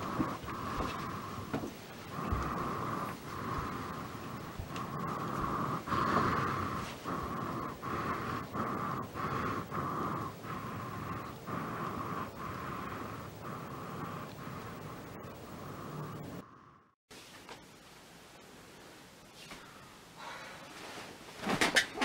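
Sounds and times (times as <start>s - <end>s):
rapid heavy breathing: 0.0s - 17.0s.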